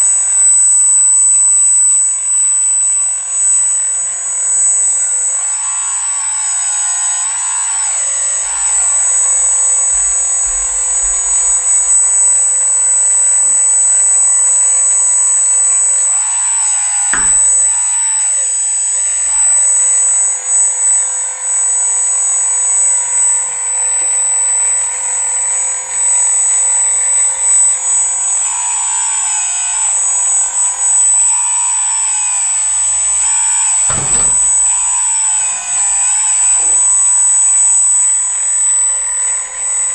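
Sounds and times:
electric motors whining: 8.3s - 16.4s
short knocks: 17.2s - 17.8s, 33.9s - 35.0s.

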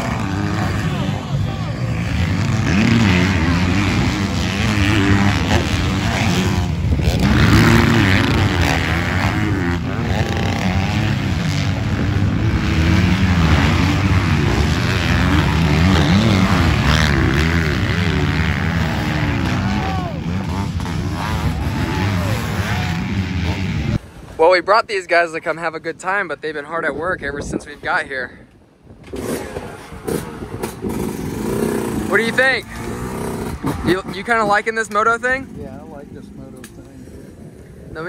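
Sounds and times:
motorbike passing close by: 0.0s - 24.0s
motocross bikes revving: 0.0s - 24.1s, 29.0s - 38.0s.

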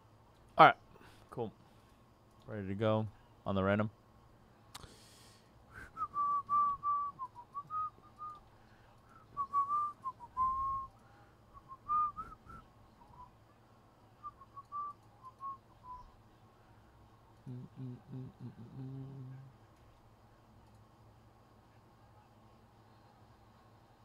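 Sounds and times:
person whistling a tune: 5.7s - 8.4s, 9.1s - 10.9s, 11.6s - 13.3s, 14.2s - 16.1s.

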